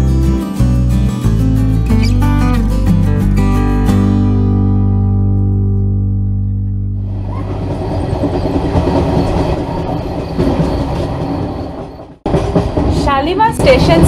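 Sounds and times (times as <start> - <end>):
train rumbling on rails: 7.0 - 14.0.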